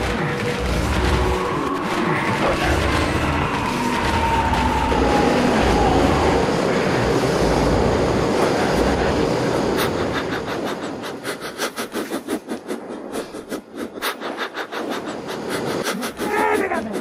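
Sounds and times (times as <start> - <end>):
loud dense rumble: 0.0 - 17.0.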